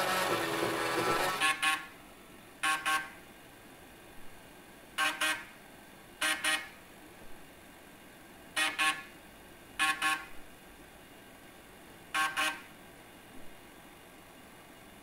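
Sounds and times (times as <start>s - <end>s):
floppy drives buzzing a melody: 0.0s - 1.6s.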